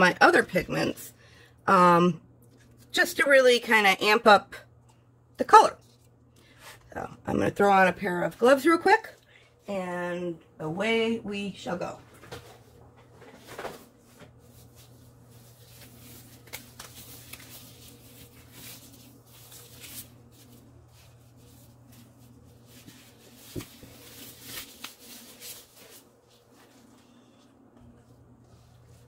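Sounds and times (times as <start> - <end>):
plastic gloves crinkling: 12.5 - 29.0.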